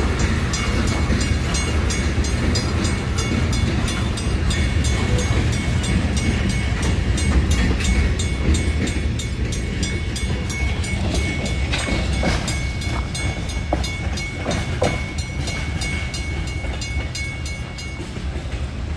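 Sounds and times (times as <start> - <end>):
crossing bell ringing: 0.0 - 18.9
train wheels rumbling on rail: 0.0 - 18.9.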